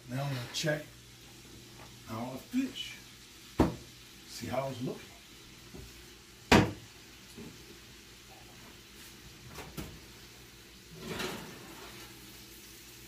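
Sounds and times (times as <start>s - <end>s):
pan scraping along oven rack: 10.8s - 12.2s.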